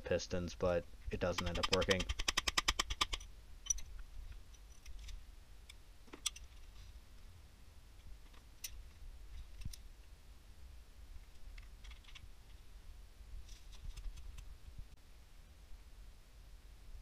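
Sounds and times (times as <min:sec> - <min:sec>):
socket ratchet clicking: 0:01.4 - 0:03.8.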